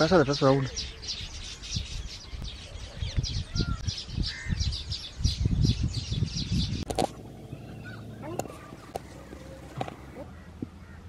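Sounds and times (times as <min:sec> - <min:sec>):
birds chirping: 0:00.0 - 0:11.0
low rumbling noise: 0:06.8 - 0:10.3.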